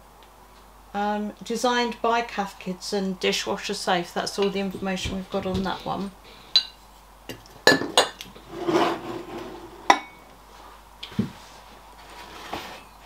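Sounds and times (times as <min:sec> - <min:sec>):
china clinking on tabletop: 0:07.7 - 0:08.2, 0:09.8 - 0:10.2
teapot scraping on table: 0:08.4 - 0:10.0, 0:12.1 - 0:12.9.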